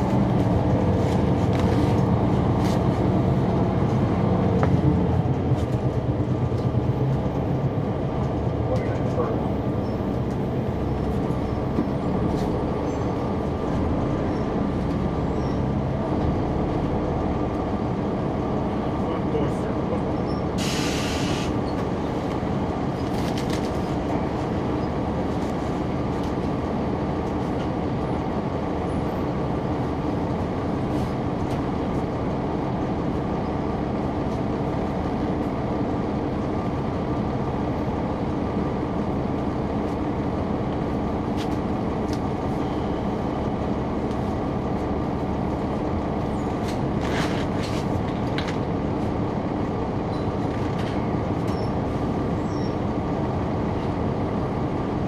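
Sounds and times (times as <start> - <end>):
diesel bus engine running: 0.0 - 55.0
short hiss: 20.6 - 21.5.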